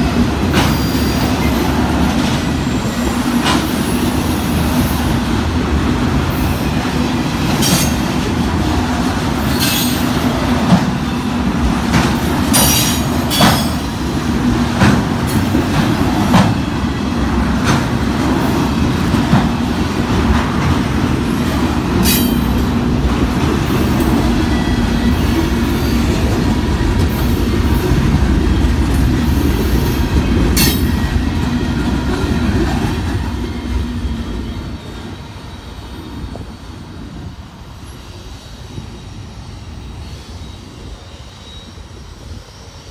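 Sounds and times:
steel wheels rumbling on rail: 0.0 - 42.9
faint wheel squeal: 40.0 - 42.9.

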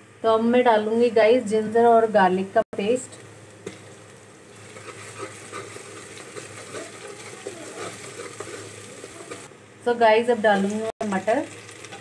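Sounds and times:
onions sizzling in oil: 2.8 - 12.0.

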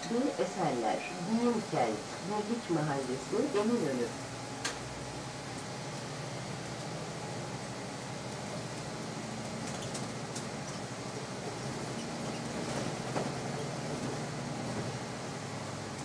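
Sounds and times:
bus engine and road rumble: 0.0 - 16.0.

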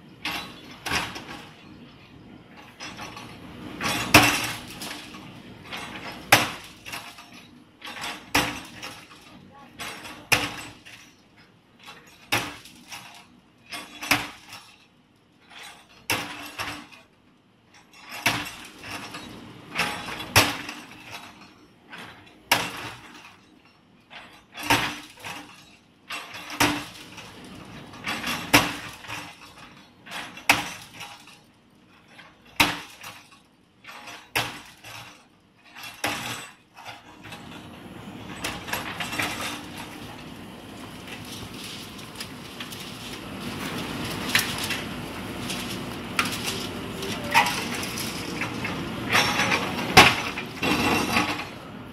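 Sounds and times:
rubble clinking and rattling: 17.8 - 51.7
diesel engine running: 37.7 - 51.9.

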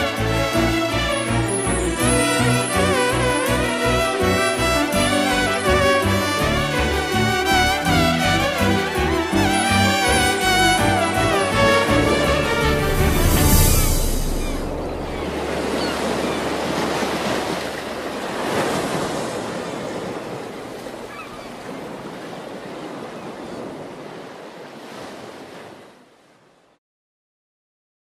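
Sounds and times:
sea waves washing in: 0.0 - 26.5.

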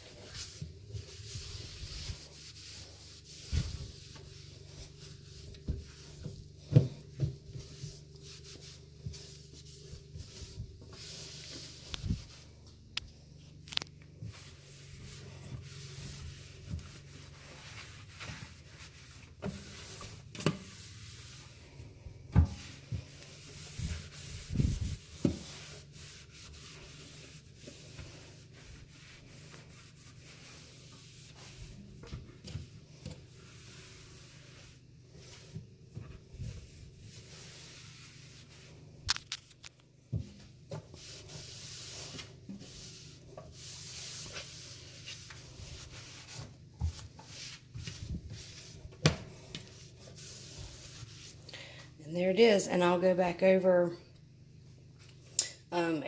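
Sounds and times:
rag rubbing over a sink: 0.0 - 12.6, 13.7 - 39.5, 40.1 - 51.5
light knocks and bumps: 5.4 - 8.0.

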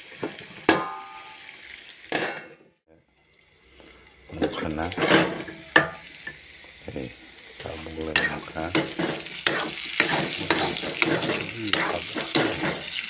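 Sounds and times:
potatoes sizzling in oil: 0.0 - 2.2, 3.0 - 13.0
metal spoon scraping pan: 4.4 - 6.4, 7.6 - 13.0.

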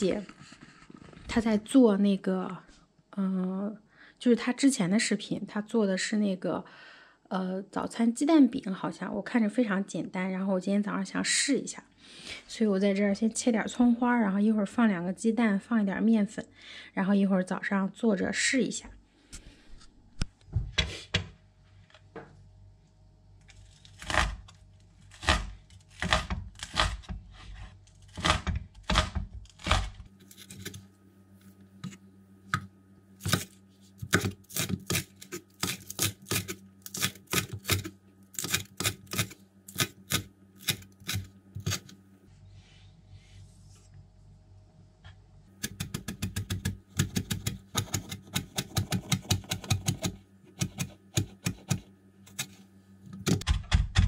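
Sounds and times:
faint steady hum: 0.0 - 54.0
knife chopping on cutting board: 25.1 - 27.2, 28.1 - 30.0, 33.2 - 41.9, 45.6 - 52.6.

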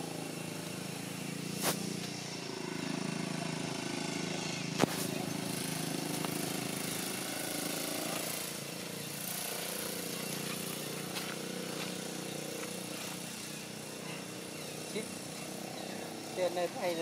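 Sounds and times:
steady motor drone: 0.0 - 17.0.

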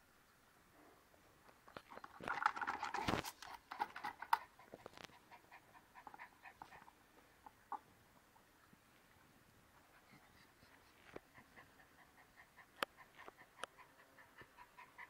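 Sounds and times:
dog panting and sniffing: 2.6 - 7.0, 9.8 - 15.0.

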